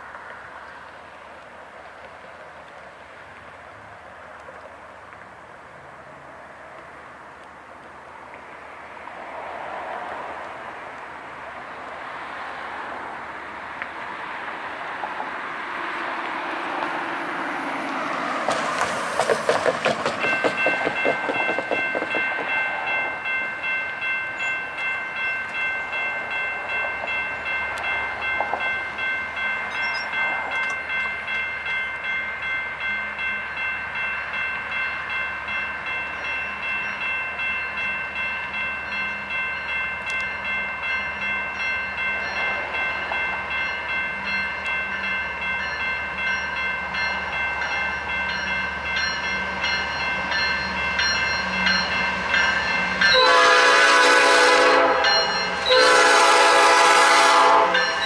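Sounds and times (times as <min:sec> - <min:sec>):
freight train passing: 0:00.0 - 0:58.0
wheels clacking over rails: 0:17.9 - 0:23.4
high-pitched ringing tone: 0:28.7 - 0:53.3.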